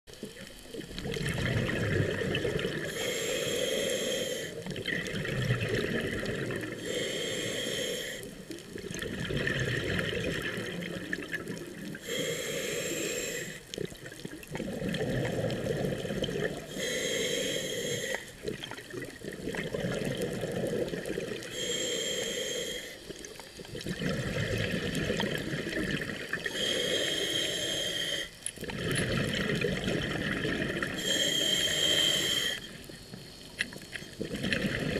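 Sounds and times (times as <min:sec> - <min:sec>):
exhaled bubbles rumbling: 0:00.1 - 0:03.0, 0:04.6 - 0:07.1, 0:08.3 - 0:12.1, 0:13.7 - 0:17.0, 0:18.0 - 0:21.7, 0:23.0 - 0:26.6, 0:28.6 - 0:31.1, 0:32.7 - 0:34.9
regulator breathing hiss: 0:02.8 - 0:04.7, 0:06.6 - 0:08.7, 0:11.9 - 0:13.8, 0:16.6 - 0:18.4, 0:21.4 - 0:23.3, 0:26.4 - 0:28.5, 0:31.0 - 0:33.4.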